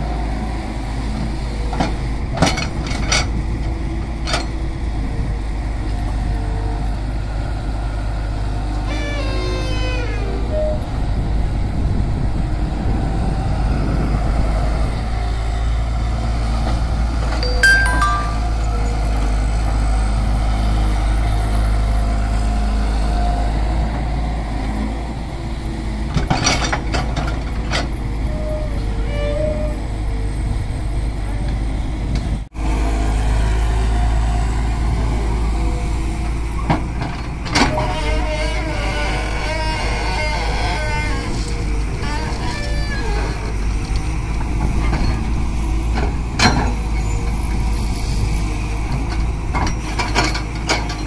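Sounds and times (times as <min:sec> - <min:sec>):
excavator diesel engine rumbling: 0:00.0 - 0:51.0
excavator digging soil: 0:18.6 - 0:51.0.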